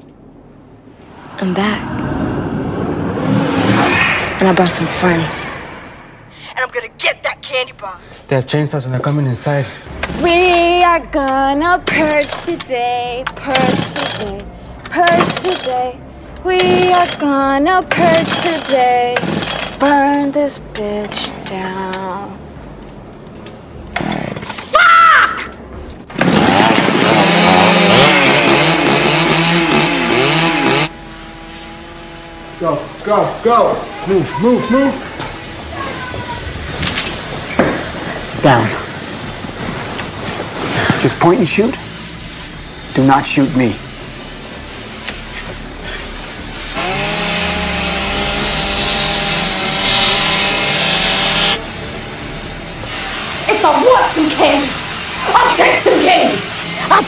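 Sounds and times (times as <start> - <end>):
gas-powered saws revving: 26.1 - 40.0, 40.6 - 57.0.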